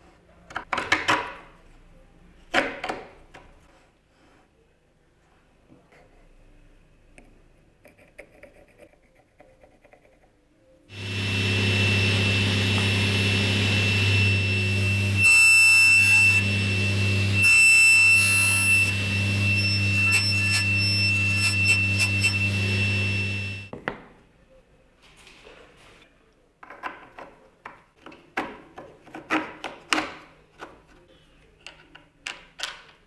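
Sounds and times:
wooden block being cut: 0:10.9 - 0:23.7
woodworking machine humming: 0:10.9 - 0:23.7.

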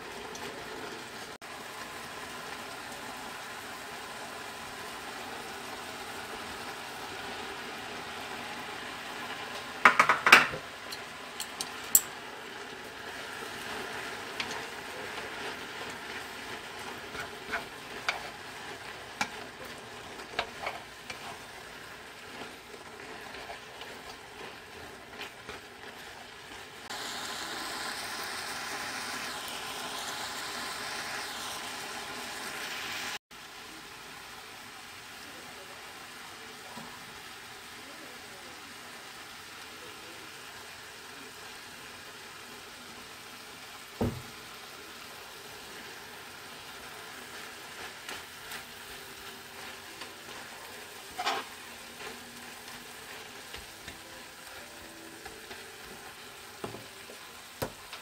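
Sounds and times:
food sizzling in a frying pan: 0:00.0 - 0:58.0
utensils clicking against pan: 0:09.5 - 0:12.2, 0:14.3 - 0:26.6, 0:47.8 - 0:58.0.

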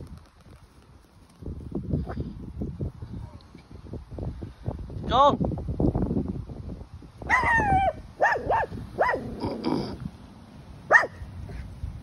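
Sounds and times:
dog barking: 0:07.3 - 0:09.3, 0:10.9 - 0:11.2.

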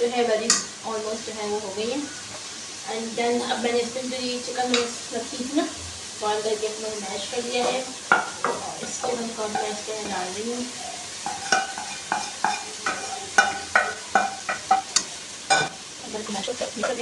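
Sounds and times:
spatula tapping wok: 0:00.4 - 0:00.8, 0:04.6 - 0:05.0, 0:07.6 - 0:10.5, 0:11.1 - 0:15.8, 0:16.8 - 0:17.0
metal spatula scraping wok: 0:11.1 - 0:15.8.

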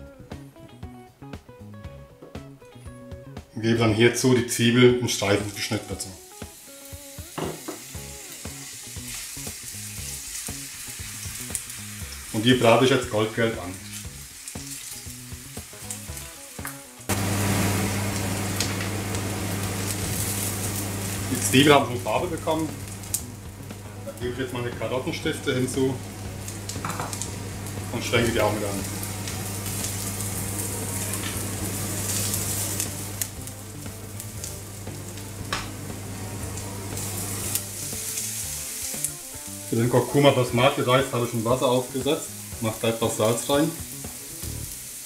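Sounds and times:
faint background music: 0:00.0 - 0:17.1, 0:21.2 - 0:45.0
onions sizzling in oil: 0:05.2 - 0:45.0
steady electrical hum: 0:17.1 - 0:39.8.

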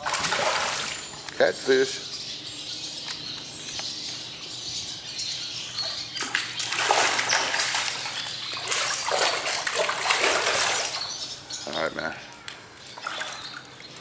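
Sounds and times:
fish splashing at water surface: 0:00.0 - 0:01.1, 0:06.2 - 0:11.1.

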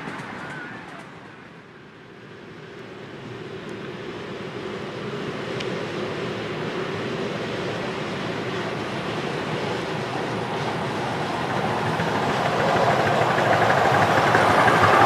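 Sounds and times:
miniature steam train running: 0:06.2 - 0:15.0.

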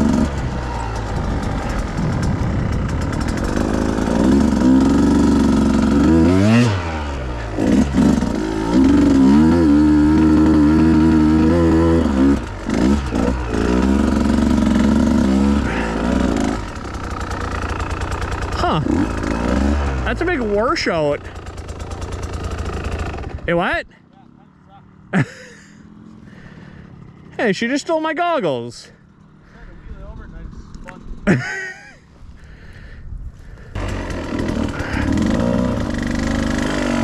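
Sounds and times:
dirt bike engine revving: 0:00.0 - 0:23.8, 0:33.5 - 0:37.0.

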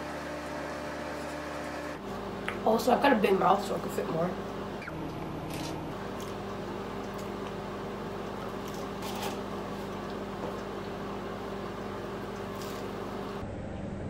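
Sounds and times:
low hum: 0:04.4 - 0:08.1
people chewing: 0:05.5 - 0:07.6.

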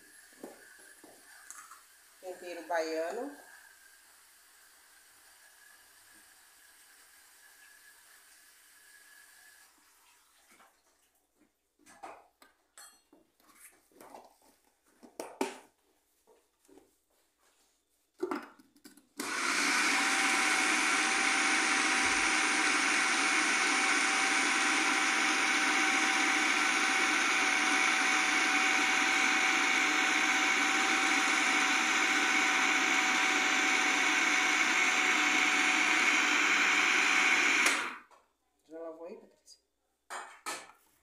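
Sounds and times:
food processor motor whining: 0:19.2 - 0:38.1.

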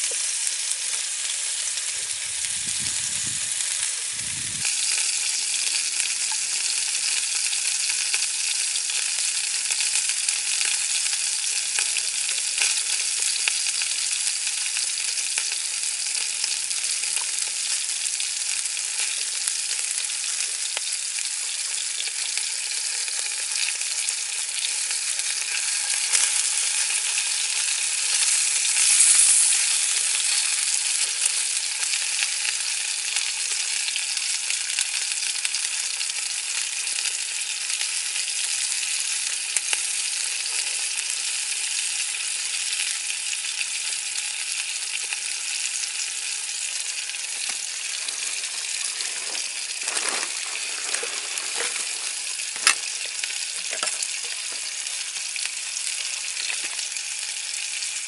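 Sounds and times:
meatballs sizzling in a pan: 0:00.0 - 0:58.0
small pops and crackles: 0:56.4 - 0:56.9.

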